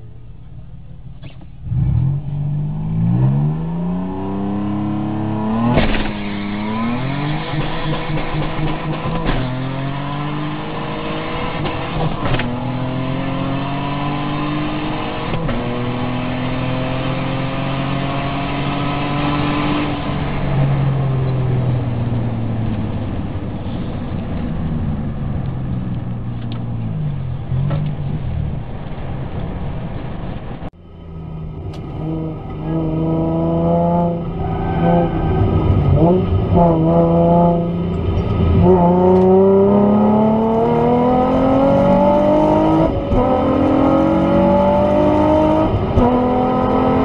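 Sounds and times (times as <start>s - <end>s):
car engine revving at full throttle: 1.1s - 47.0s
gear upshifts: 30.8s - 47.0s.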